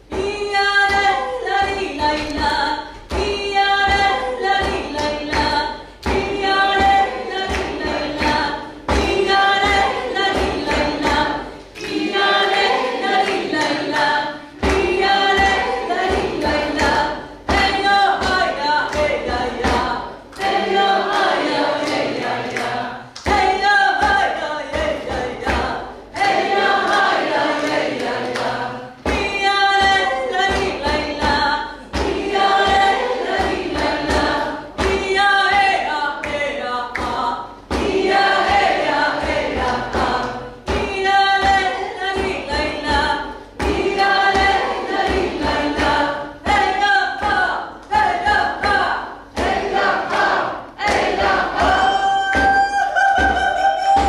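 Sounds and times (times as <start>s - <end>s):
woman singing folk song: 0.0s - 20.2s, 23.2s - 26.3s, 29.0s - 44.6s, 45.3s - 49.1s
frame drum beat: 0.0s - 54.0s.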